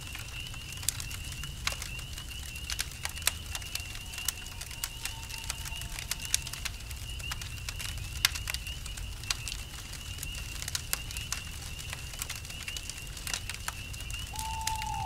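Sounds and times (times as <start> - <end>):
campfire crackling and popping: 0.0 - 15.0
crickets chirping: 3.4 - 7.6, 14.1 - 15.0.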